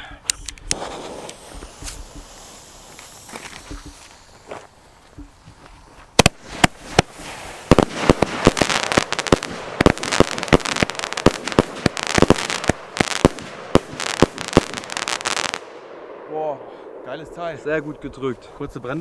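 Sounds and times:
crackling hiss: 0:00.0 - 0:19.0
firework bangs: 0:00.7 - 0:05.5, 0:06.1 - 0:15.8.

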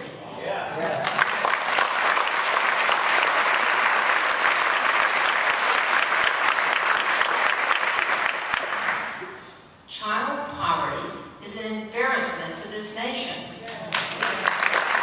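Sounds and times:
audience applauding: 0:00.7 - 0:09.3, 0:13.9 - 0:15.0.

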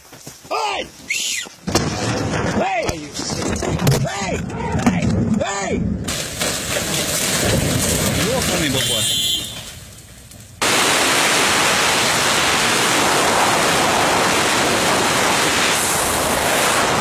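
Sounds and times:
strong wind on microphone: 0:11.4 - 0:17.0.

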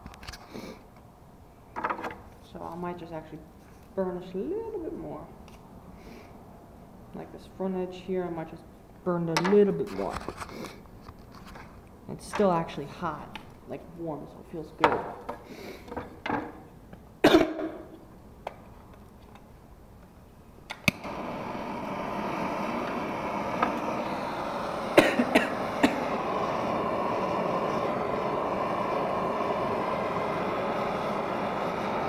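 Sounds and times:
person coughing: 0:17.2 - 0:17.8, 0:25.0 - 0:26.1
propane torch lighting click: 0:20.7 - 0:32.0
torch flame hissing: 0:20.8 - 0:32.0.

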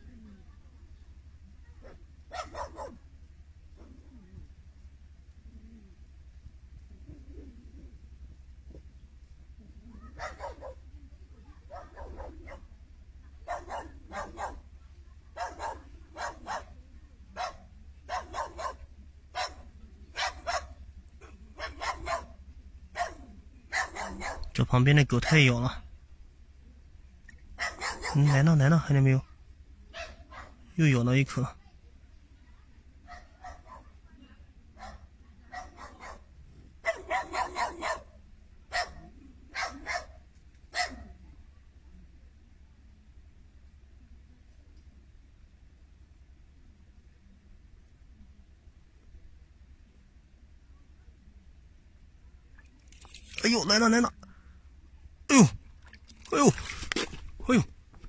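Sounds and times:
dog barking: 0:01.7 - 0:03.0, 0:10.0 - 0:10.8, 0:11.7 - 0:12.7, 0:13.4 - 0:14.7, 0:15.3 - 0:24.6, 0:27.6 - 0:28.6, 0:29.9 - 0:30.7, 0:33.1 - 0:34.0, 0:34.8 - 0:41.2.

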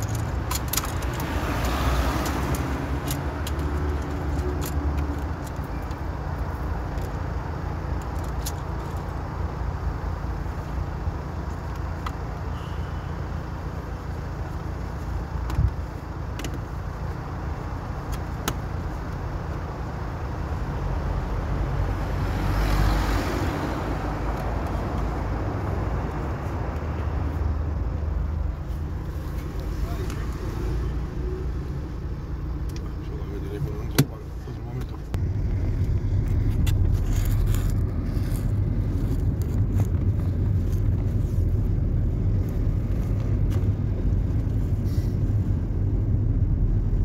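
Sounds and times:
traffic rumble: 0:00.0 - 0:47.0.

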